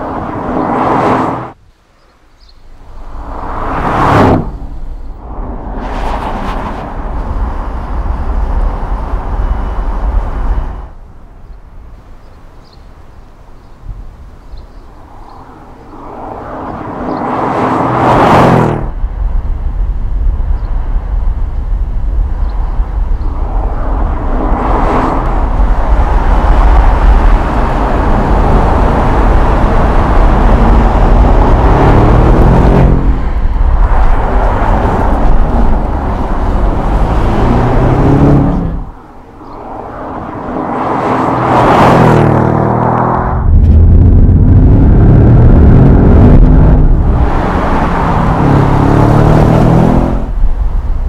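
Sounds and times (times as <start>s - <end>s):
car engine accelerating: 23.2s - 39.0s, 39.8s - 50.4s.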